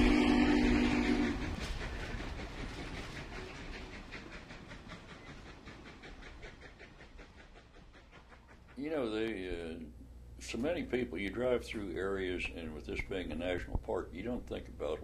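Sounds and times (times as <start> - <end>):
steam whistle chord: 0.0 - 1.6
steam train running rhythm: 0.0 - 15.0.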